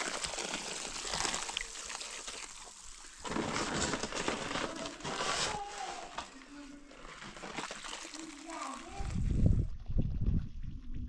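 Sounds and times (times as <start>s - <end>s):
cement powder splashing into water: 0.0s - 5.0s, 7.2s - 9.4s.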